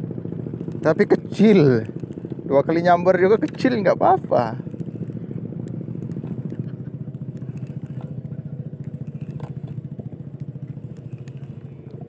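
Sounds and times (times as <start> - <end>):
small engine chugging: 0.0 - 12.0
faint clicks: 1.8 - 2.4, 4.6 - 9.8, 10.4 - 12.0.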